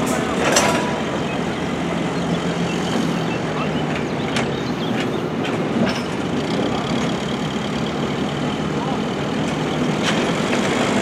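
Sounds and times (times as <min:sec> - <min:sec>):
short metallic knocks: 0:00.0 - 0:01.8.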